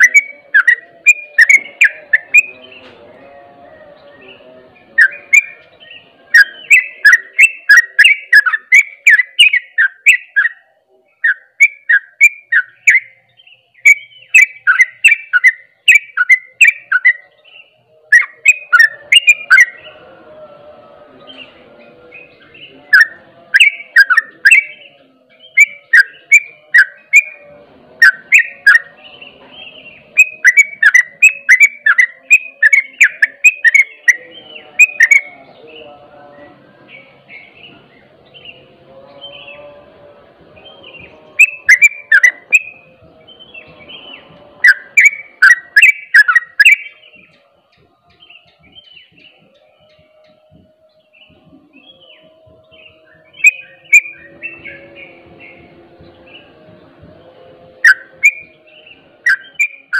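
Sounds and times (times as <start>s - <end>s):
bird singing sharp chirps: 0.0s - 3.0s, 3.7s - 20.0s, 22.1s - 35.9s, 40.6s - 47.4s, 51.0s - 55.7s, 57.8s - 59.9s.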